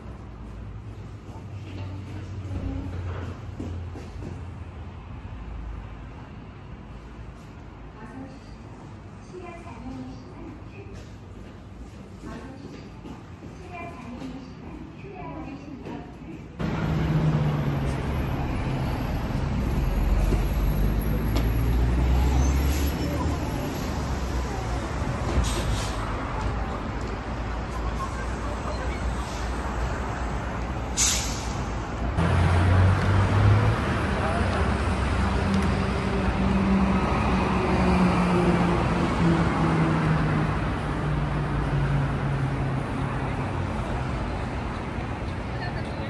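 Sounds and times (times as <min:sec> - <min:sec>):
road traffic noise: 0:00.0 - 0:46.0
heavy vehicle engine hum: 0:16.6 - 0:46.0.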